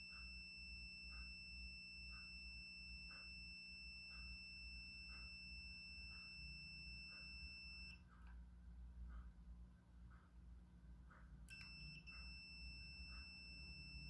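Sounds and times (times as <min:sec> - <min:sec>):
multimeter continuity beep: 0:00.0 - 0:08.3, 0:11.4 - 0:14.0.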